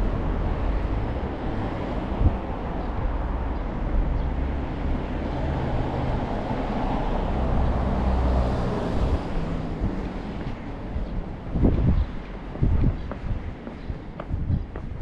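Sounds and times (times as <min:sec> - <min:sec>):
vehicle passing: 0:03.2 - 0:11.7.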